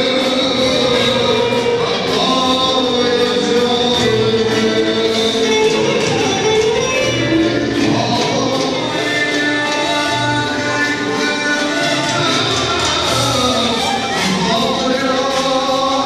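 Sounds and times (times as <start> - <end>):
music with singing: 0.0 - 16.0.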